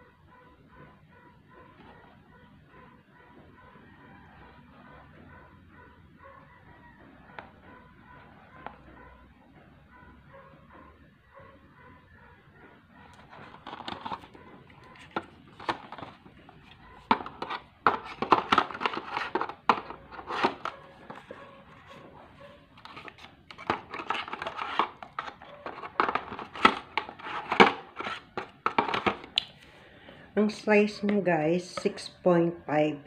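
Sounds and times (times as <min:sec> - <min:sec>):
crinkling handling noise: 0:13.0 - 0:30.2.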